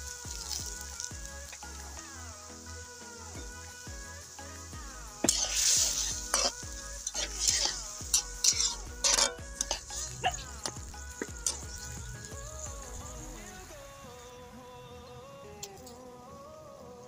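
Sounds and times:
hot pan sizzling: 0.0s - 17.0s
metal spatula scraping a wok: 5.2s - 12.0s.

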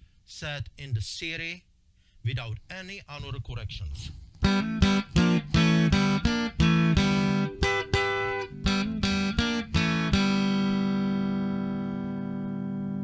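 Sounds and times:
clean electric guitar chords: 4.4s - 13.0s.

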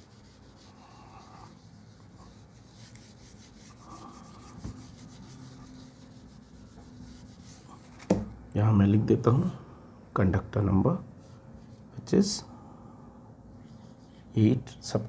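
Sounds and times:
eraser rubbing on whiteboard: 0.0s - 8.0s.

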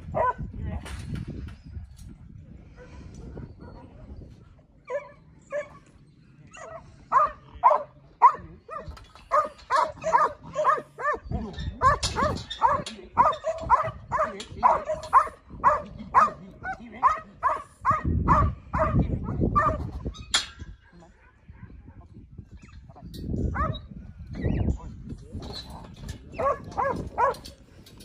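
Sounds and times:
dog barking: 6.6s - 11.2s, 11.8s - 16.4s, 17.0s - 19.8s, 23.6s - 23.8s, 26.4s - 27.4s.

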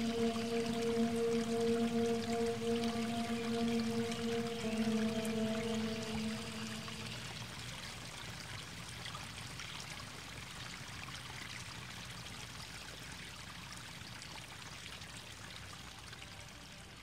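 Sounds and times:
faint rushing noise: 0.0s - 7.5s.

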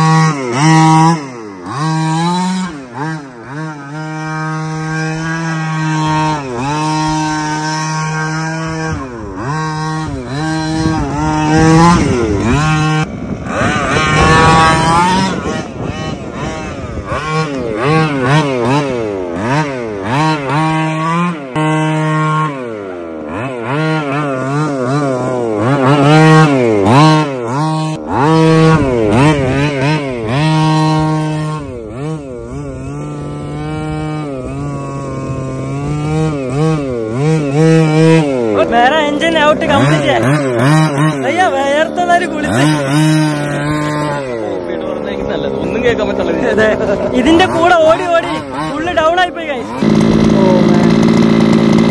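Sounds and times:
two-stroke engine revving: 0.0s - 51.9s.

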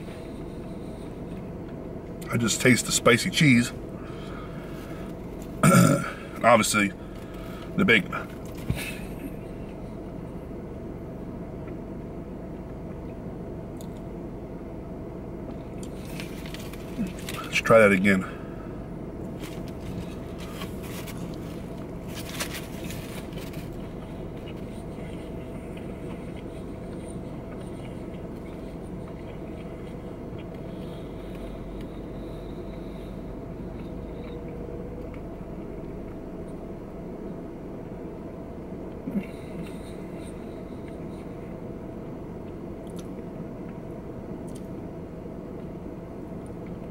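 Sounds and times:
man chewing: 0.0s - 2.3s, 15.4s - 17.6s, 18.4s - 46.9s
car cabin hum: 0.0s - 46.9s
chewing and paper wrapper clicks: 15.8s - 17.6s, 19.4s - 30.6s.

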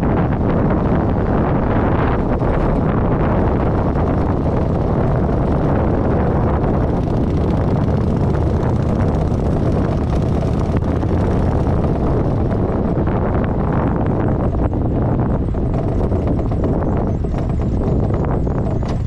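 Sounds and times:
motorcycle engine running: 0.0s - 19.0s
wind noise on microphone: 0.0s - 19.0s.

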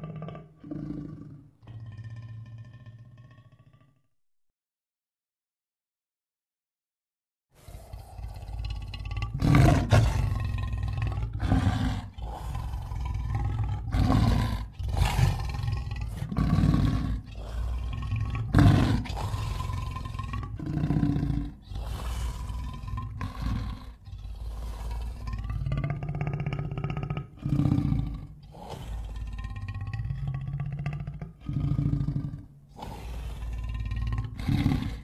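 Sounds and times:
monster roars: 7.6s - 35.0s.

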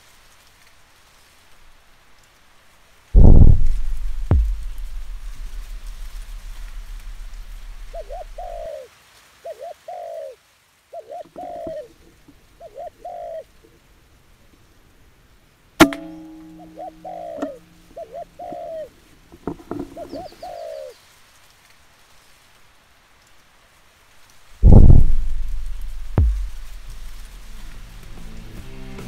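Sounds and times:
sharp crack: 3.2s - 8.7s, 15.8s - 18.8s, 24.6s - 29.0s
dove cooing: 6.1s - 13.6s, 16.1s - 19.0s, 19.6s - 21.0s.

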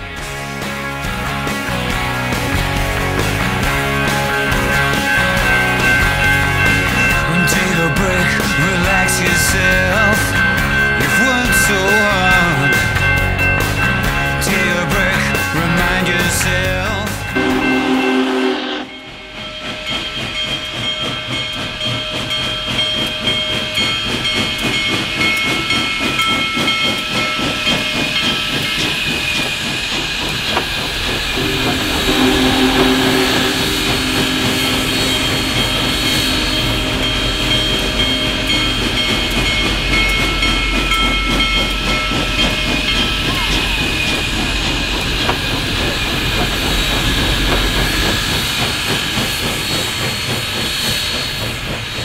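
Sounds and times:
steam locomotive hissing: 0.0s - 52.0s
chime whistle blast: 31.3s - 40.2s.

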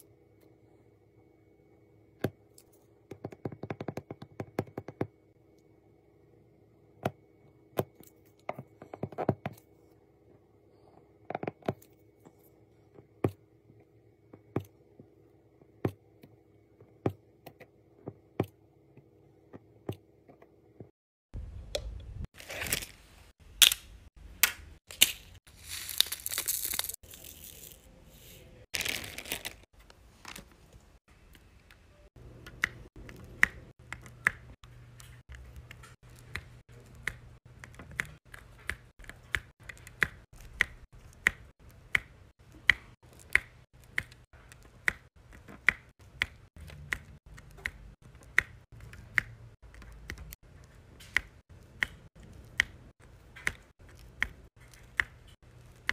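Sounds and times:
crinkling plastic rustle: 25.5s - 30.9s.

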